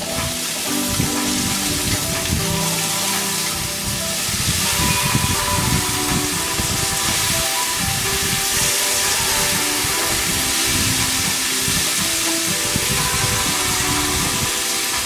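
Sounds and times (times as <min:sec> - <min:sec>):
background music: 0:00.0 - 0:15.0
vegetables sizzling in frying pan: 0:00.0 - 0:15.0.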